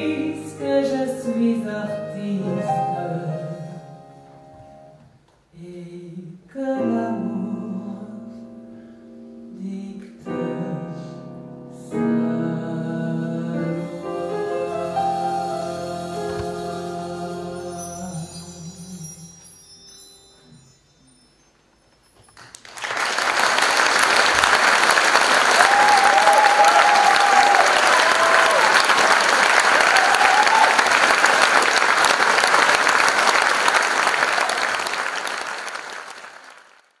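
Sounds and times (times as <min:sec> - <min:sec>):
audience applauding: 0:22.4 - 0:37.0.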